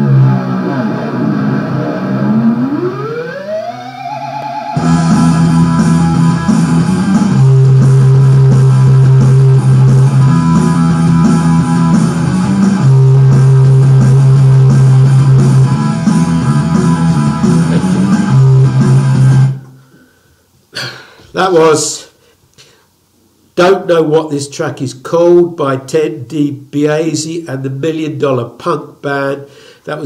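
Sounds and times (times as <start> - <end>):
rock music with electric guitar: 0.0 - 19.7.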